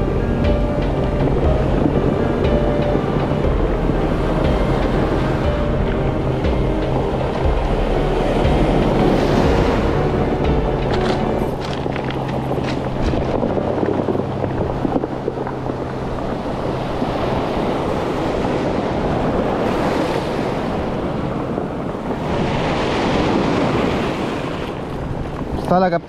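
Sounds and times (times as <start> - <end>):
wind buffeting microphone: 0.0 - 26.0
surf washing over cobbles: 6.6 - 26.0.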